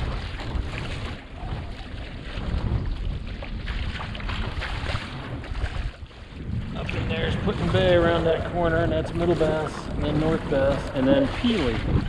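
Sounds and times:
waves splashing against boat: 0.0 - 12.0
wind noise on microphone: 0.0 - 12.0.

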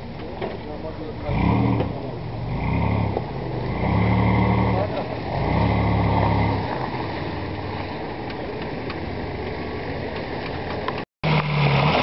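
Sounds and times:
engine low drone: 0.0 - 12.0
engine rough rumble: 0.0 - 12.0.

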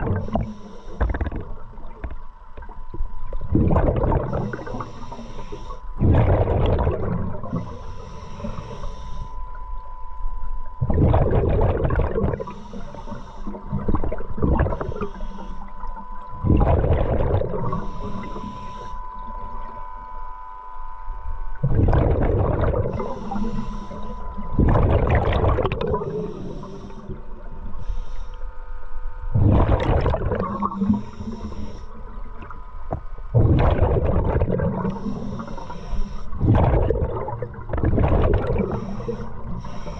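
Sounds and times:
diver inhaling through regulator: 0.0 - 1.6, 3.6 - 9.6, 11.1 - 19.7, 21.7 - 32.5, 33.4 - 39.9
exhaled bubbles rushing: 0.0 - 5.1, 6.0 - 7.8, 10.8 - 12.5, 13.5 - 15.1, 15.8 - 18.3, 21.5 - 27.5, 29.3 - 35.5, 36.3 - 39.9
faint steady whine: 0.0 - 39.9.

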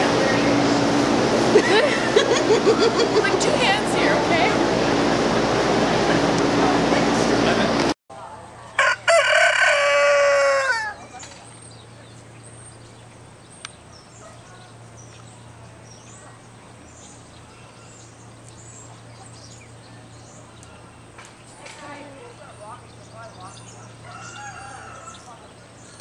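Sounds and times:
rooster crowing: 8.8 - 11.1, 24.0 - 25.5.

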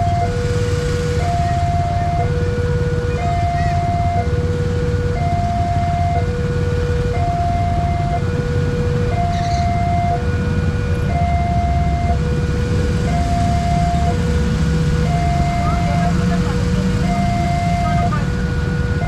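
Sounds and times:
motorbike engines idling: 0.0 - 19.0
two-tone crossing alarm: 0.0 - 19.0.

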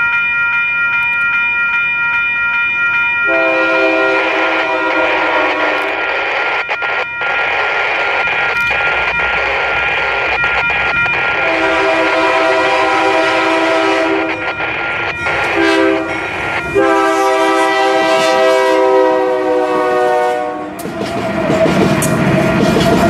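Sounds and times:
locomotive air horn blasts: 3.3 - 6.0, 11.4 - 14.5, 15.3 - 20.8
locomotive engine and wheels rumbling: 4.4 - 18.4, 20.0 - 23.0.

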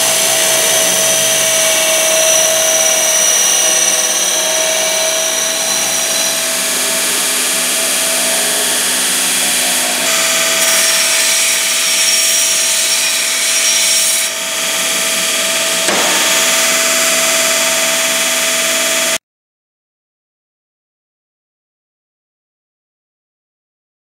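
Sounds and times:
grinder whining on steel pipe: 0.0 - 19.2.

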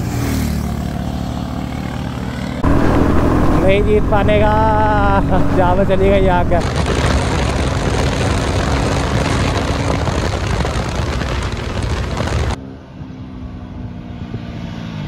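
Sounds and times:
motorcycle engine running hard: 0.0 - 12.6
wind rush on microphone: 4.9 - 12.6.

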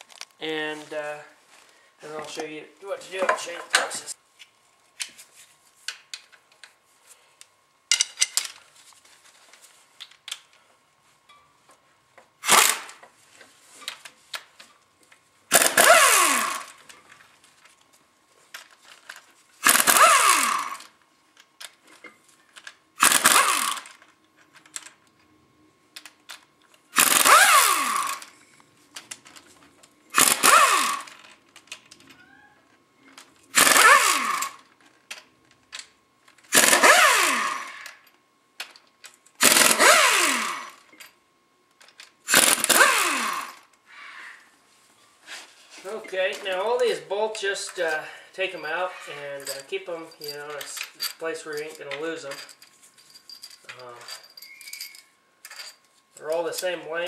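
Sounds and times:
power tool whine: 12.4 - 13.0, 15.5 - 16.8, 19.6 - 20.9, 23.0 - 24.0, 26.9 - 28.3, 30.1 - 31.2, 33.5 - 34.7, 36.5 - 38.0, 39.4 - 40.9, 42.3 - 43.7.

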